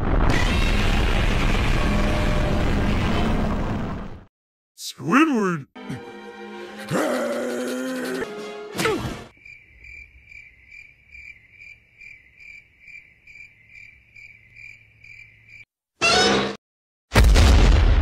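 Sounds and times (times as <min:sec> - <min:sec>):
sudden loud burst: 0:00.0 - 0:04.0
short voiced sound: 0:04.8 - 0:06.0
cricket chirping: 0:09.3 - 0:15.7.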